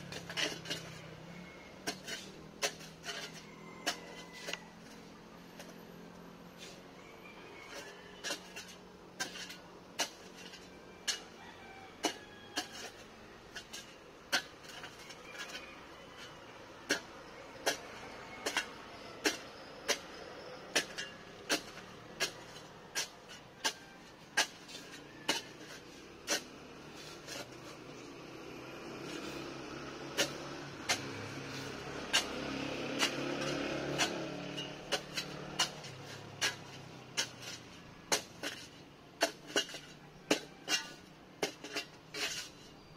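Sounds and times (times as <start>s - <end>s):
steady background noise: 0.0s - 42.9s
digging tool striking hard ground: 16.8s - 27.7s, 30.0s - 42.5s.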